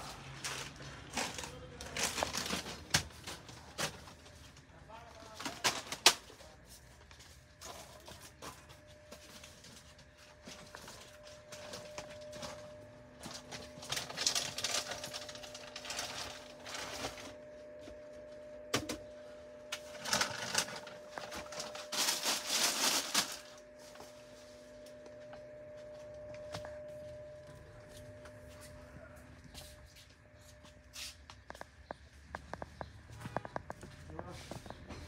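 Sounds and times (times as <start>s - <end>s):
plastic packets rustling: 0.0s - 17.4s, 19.8s - 23.8s
steady hum: 5.6s - 35.0s.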